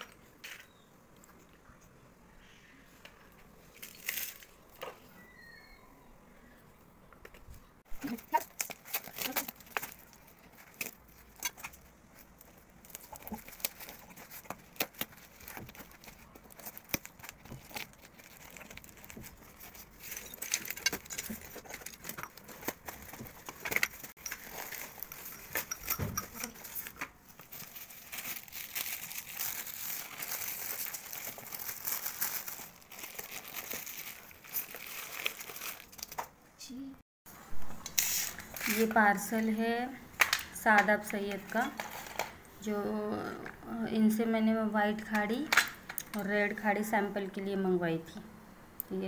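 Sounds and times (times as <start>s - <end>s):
plastic wrap crinkling: 3.7s - 4.7s, 8.0s - 36.3s.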